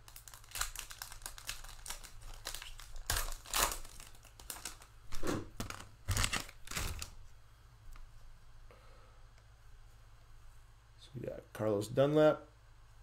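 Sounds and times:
card pack wrapper crinkling and tearing: 0.0 - 7.2.

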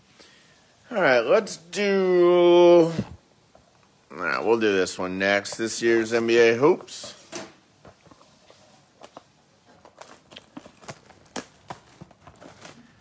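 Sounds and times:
cardboard box clicks and crinkles: 9.0 - 13.0.

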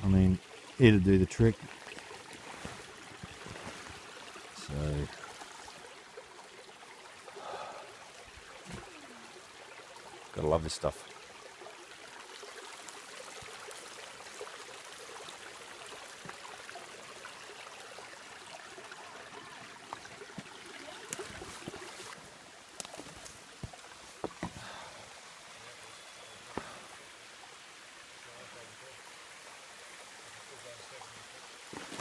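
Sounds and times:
creek trickling over rocks: 0.0 - 32.0
footsteps on stones and sticks: 1.9 - 4.0, 22.8 - 24.6, 31.7 - 32.0.

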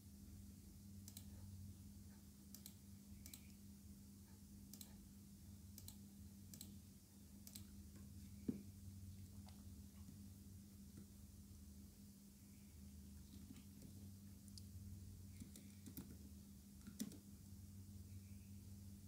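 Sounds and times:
low electrical hum: 0.0 - 19.0
faint computer mouse clicks: 1.0 - 1.4, 2.5 - 3.6, 4.7 - 5.0, 5.7 - 6.8, 15.3 - 16.2.

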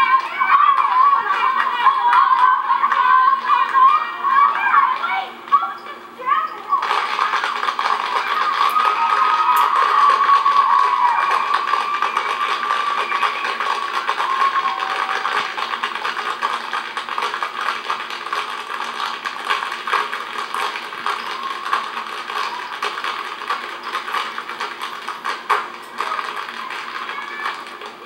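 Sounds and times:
faint thin music: 0.0 - 28.0
tap shoes clattering: 6.8 - 28.0.

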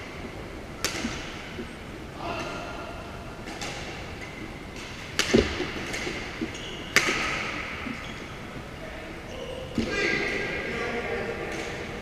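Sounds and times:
racket hitting shuttlecock: 0.8 - 1.6, 3.4 - 8.0.

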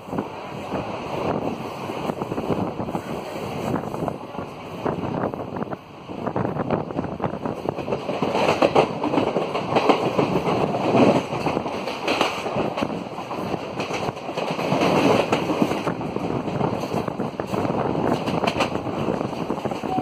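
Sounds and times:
rushing wind and running noise: 0.0 - 20.0
train wheels clattering over rail joints: 7.1 - 20.0.

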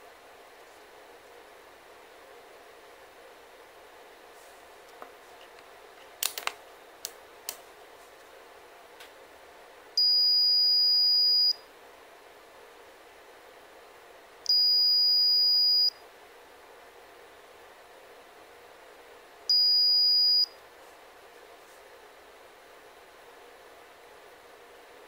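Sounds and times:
multimeter continuity beep: 10.0 - 11.6, 14.5 - 16.0, 19.5 - 20.6.

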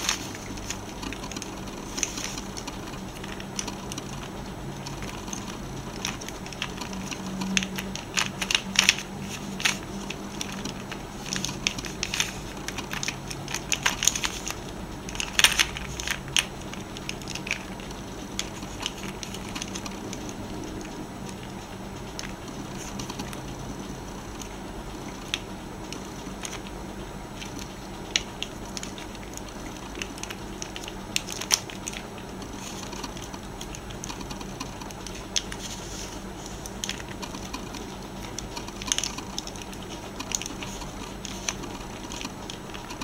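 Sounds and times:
plastic puzzle pieces clicking: 4.9 - 20.9.

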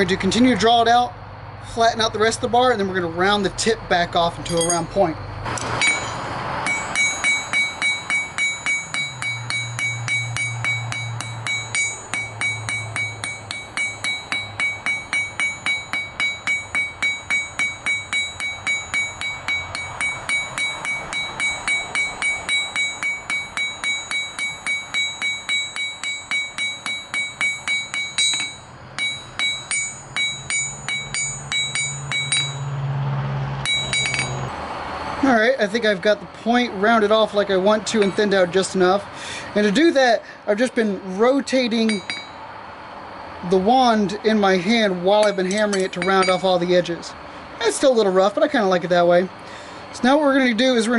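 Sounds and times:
hammer striking metal on anvil: 4.4 - 5.0, 5.6 - 32.8, 33.6 - 34.6, 37.9 - 38.3, 41.8 - 42.4, 45.2 - 46.6.

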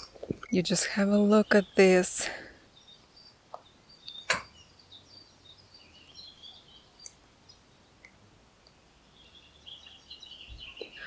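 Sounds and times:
bird chirps: 2.6 - 8.1, 9.0 - 11.0.

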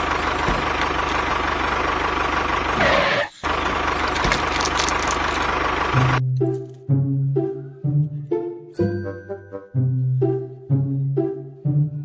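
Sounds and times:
engine running: 0.0 - 8.5.

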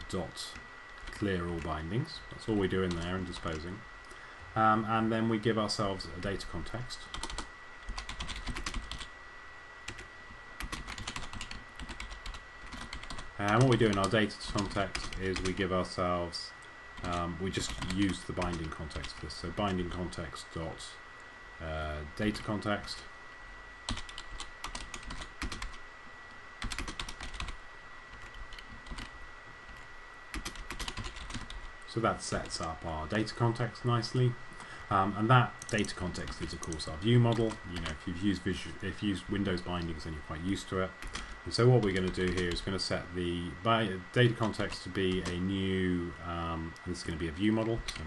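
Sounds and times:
computer keyboard typing: 2.8 - 3.6, 7.1 - 9.1, 9.9 - 15.6, 17.0 - 20.0, 23.9 - 25.8, 26.6 - 29.1, 29.7 - 31.7, 35.6 - 38.0, 41.0 - 42.7, 44.4 - 45.4
typing on a keyboard: 7.1 - 9.1, 10.6 - 15.6, 23.9 - 25.8, 26.6 - 27.6, 30.3 - 31.6.

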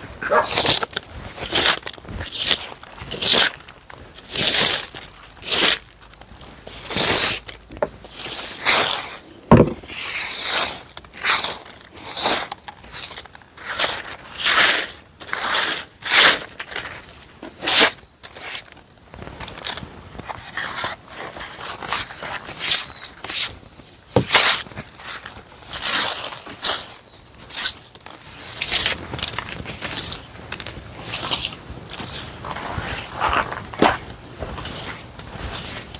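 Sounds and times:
plastic brush scrubbing tabletop: 8.1 - 16.4, 31.0 - 35.9.

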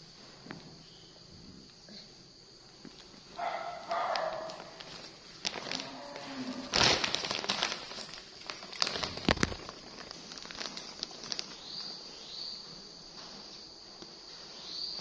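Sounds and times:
plastic packaging crinkling: 3.0 - 12.4.

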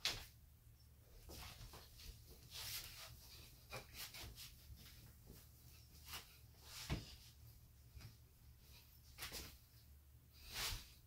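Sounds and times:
clothes rustling: 1.1 - 11.0.

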